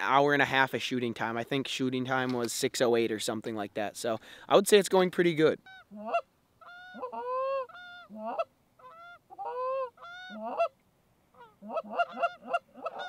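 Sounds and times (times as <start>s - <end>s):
geese honking: 5.6s - 10.8s, 11.4s - 13.0s.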